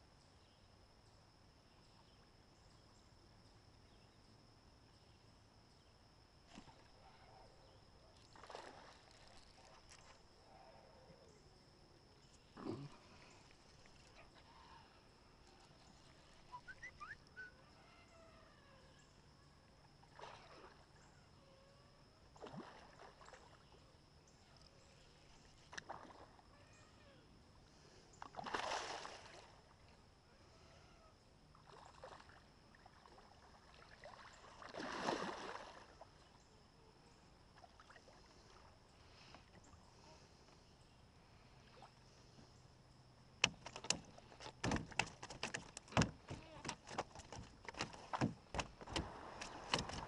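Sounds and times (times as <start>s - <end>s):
fish splashing in water: 28.3s - 29.5s, 33.8s - 35.9s, 43.4s - 50.0s.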